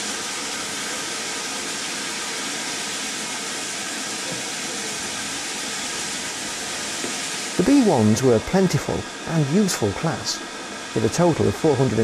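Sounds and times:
steam hissing from locomotive: 0:00.0 - 0:12.0.

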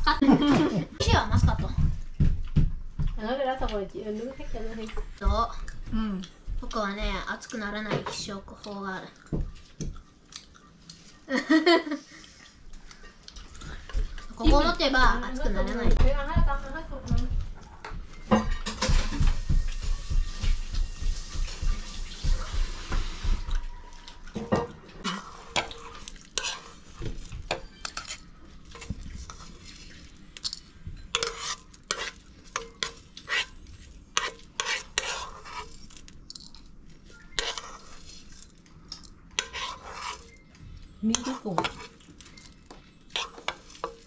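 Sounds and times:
metal spoon scraping a pan: 0:25.0 - 0:36.5, 0:37.2 - 0:38.6, 0:39.3 - 0:40.4, 0:41.1 - 0:44.0.

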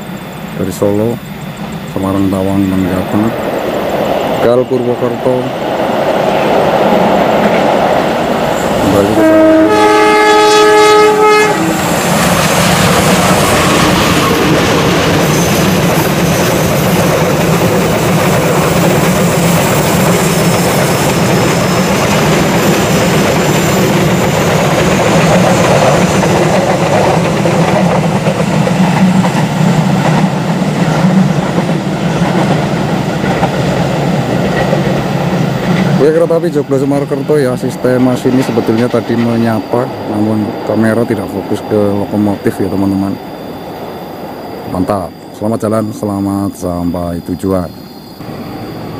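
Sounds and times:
train running past on rails: 0:00.0 - 0:48.9
locomotive horn: 0:08.8 - 0:12.0.

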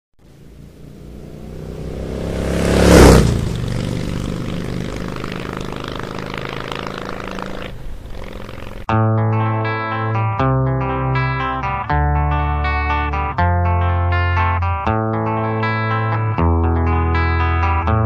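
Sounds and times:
vehicle engine passing: 0:00.2 - 0:08.9.

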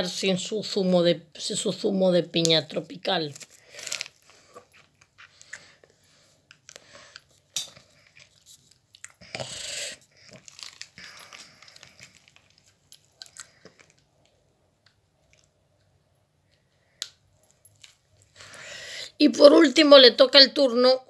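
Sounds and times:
packaging crinkling: 0:03.1 - 0:05.6, 0:10.1 - 0:14.3.

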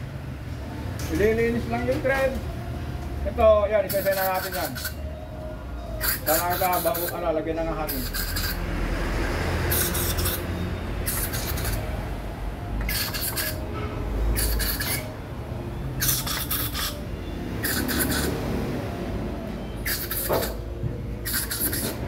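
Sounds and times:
aerosol spray bursts: 0:06.0 - 0:07.2, 0:07.9 - 0:08.6, 0:09.7 - 0:10.4, 0:11.1 - 0:11.8, 0:12.9 - 0:13.6, 0:14.4 - 0:15.0, 0:17.6 - 0:18.3, 0:19.8 - 0:20.6, 0:21.2 - 0:22.0.

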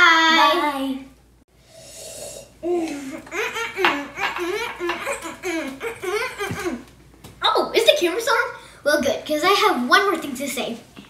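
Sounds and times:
girl giggling: 0:02.6 - 0:06.9.

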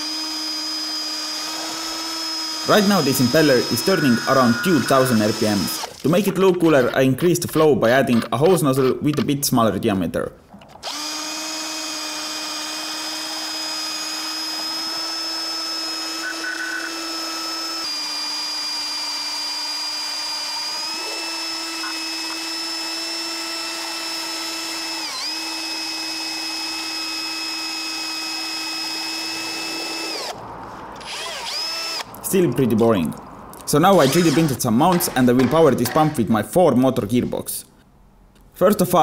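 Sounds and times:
power drill motor whine: 0:00.0 - 0:06.0, 0:10.8 - 0:30.4, 0:31.0 - 0:32.1.

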